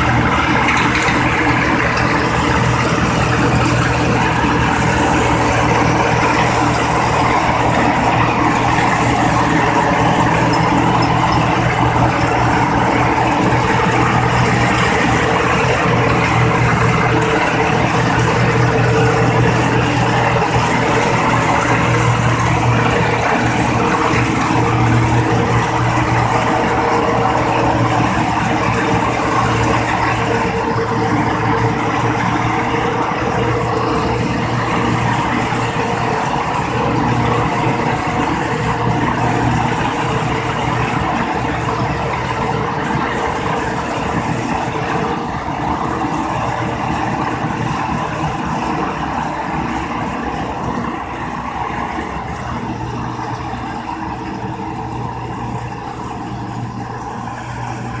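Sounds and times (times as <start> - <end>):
straw chopper rushing: 0.0 - 58.0
tractor engine running under load: 0.0 - 58.0.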